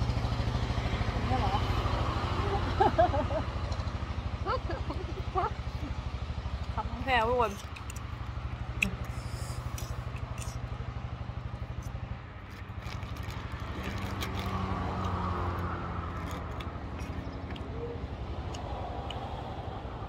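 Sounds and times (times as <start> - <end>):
vehicle engine idling: 0.0 - 20.0
small clicks and rustles: 11.8 - 17.6.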